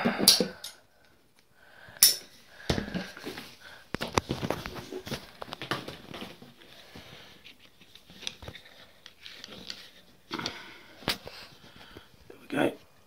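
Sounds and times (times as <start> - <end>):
soft rustles of tubing: 2.9 - 13.0.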